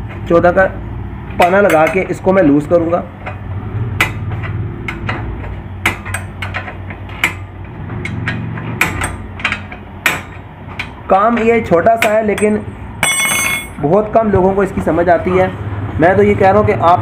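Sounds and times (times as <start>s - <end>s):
spanner clinking against metal: 1.4s - 2.6s, 3.2s - 13.8s.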